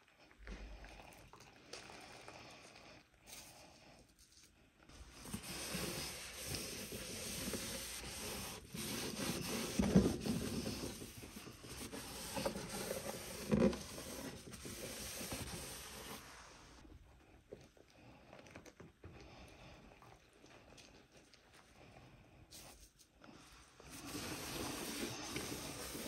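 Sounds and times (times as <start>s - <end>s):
sponge scrubbing and wiping: 4.9s - 16.8s, 22.6s - 26.0s.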